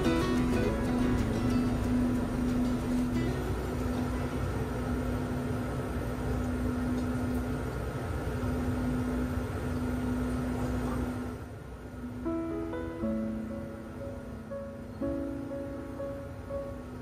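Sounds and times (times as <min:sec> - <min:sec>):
low mechanical hum and rumble: 0:00.0 - 0:17.0.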